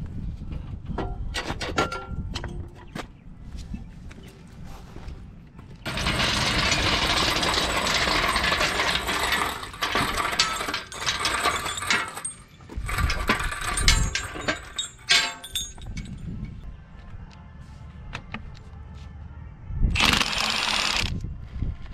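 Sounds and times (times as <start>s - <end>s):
metallic ratcheting clatter: 5.8s - 16.6s
sharp metal clanks: 5.9s - 16.6s.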